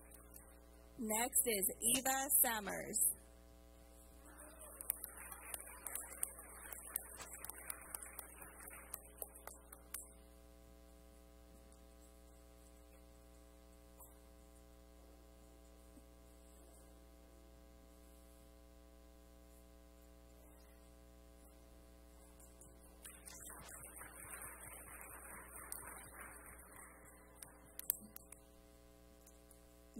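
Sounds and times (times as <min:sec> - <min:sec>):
electrical mains hum: 0:00.0 - 0:29.9
audience clapping: 0:04.3 - 0:10.0, 0:23.0 - 0:28.1.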